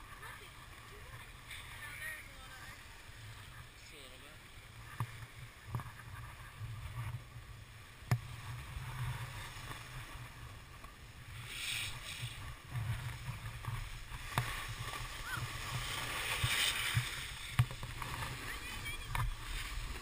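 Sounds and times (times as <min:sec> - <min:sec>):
skis scraping on snow: 0:08.3 - 0:20.0.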